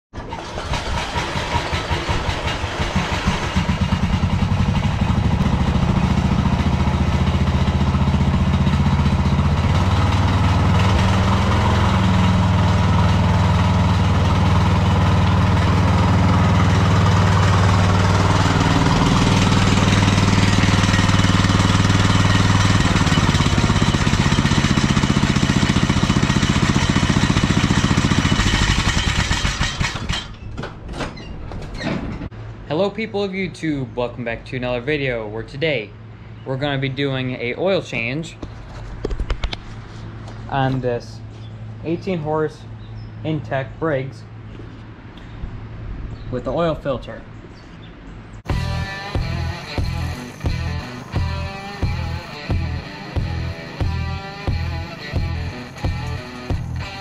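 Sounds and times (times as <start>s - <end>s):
riding lawn mower engine running: 0.2s - 31.0s, 47.3s - 57.0s.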